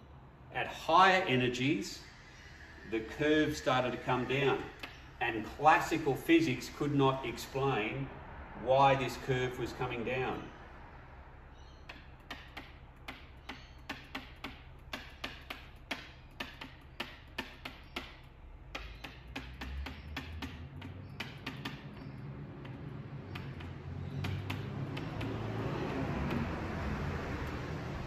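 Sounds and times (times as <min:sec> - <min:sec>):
pen tapping on whiteboard: 0:11.9 - 0:25.6.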